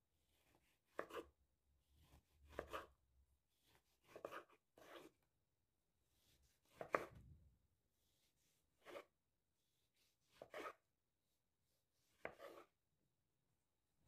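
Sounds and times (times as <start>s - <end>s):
knife slicing onto cutting board: 0.9s - 1.3s, 2.5s - 2.9s, 6.7s - 7.3s, 8.8s - 9.1s, 10.3s - 10.8s, 12.2s - 12.7s.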